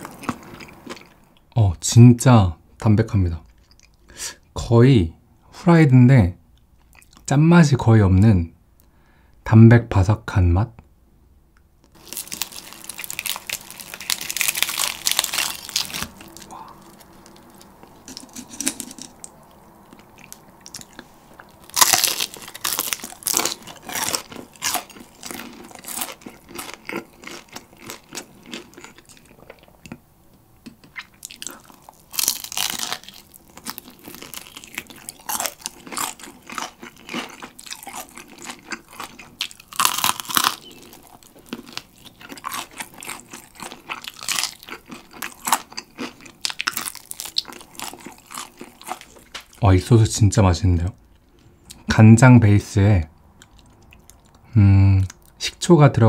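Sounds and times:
crunchy chewing: 0:00.0 - 0:01.4, 0:11.9 - 0:30.0, 0:30.6 - 0:49.6, 0:53.4 - 0:55.4
fried chicken crust crackling: 0:11.9 - 0:29.4, 0:31.1 - 0:49.6.

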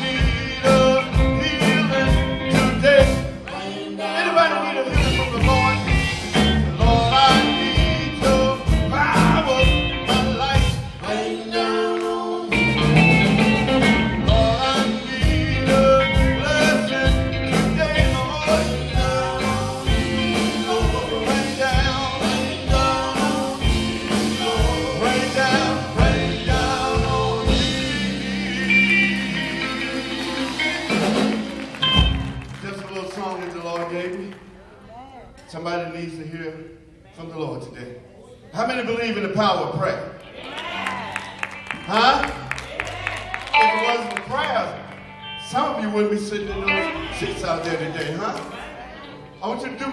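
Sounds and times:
drum kit steady beat: 0:00.0 - 0:03.8, 0:04.9 - 0:11.4, 0:12.5 - 0:32.6
electric guitars: 0:00.0 - 0:32.9, 0:40.2 - 0:49.9
singing: 0:14.2 - 0:31.0.

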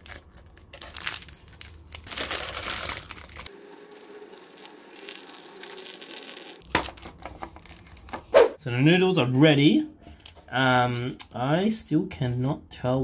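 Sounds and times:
plastic packet crinkling: 0:00.0 - 0:08.2
hot water pouring into cup: 0:03.5 - 0:06.6.

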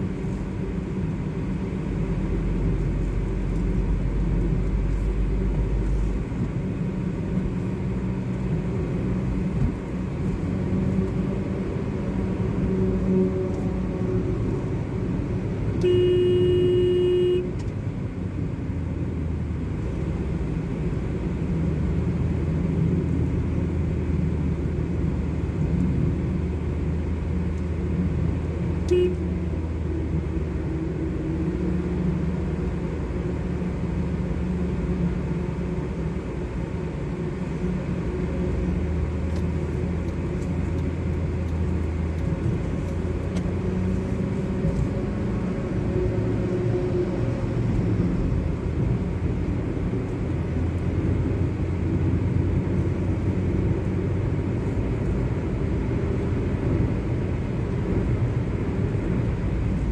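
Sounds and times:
car engine and road rumble: 0:00.0 - 0:59.9
vehicle horn: 0:15.8 - 0:17.6, 0:28.9 - 0:29.3.

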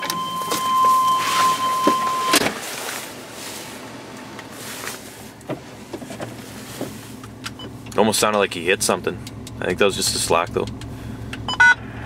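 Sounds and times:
high warning tone: 0:00.0 - 0:02.4.

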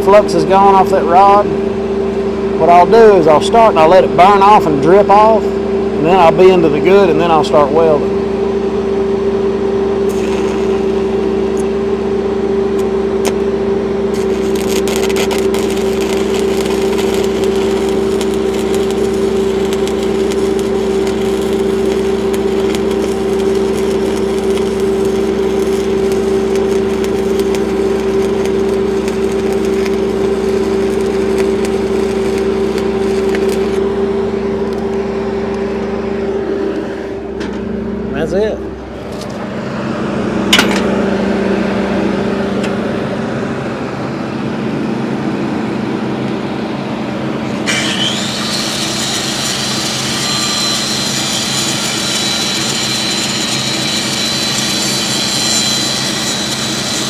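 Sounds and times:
welding machine hum: 0:00.0 - 0:57.0
welding arc crackling: 0:10.0 - 0:11.8, 0:12.7 - 0:35.6, 0:47.6 - 0:57.0.

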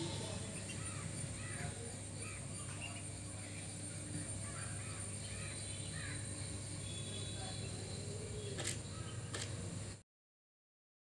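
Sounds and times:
ducklings peeping: 0:00.0 - 0:01.7, 0:02.4 - 0:03.8.

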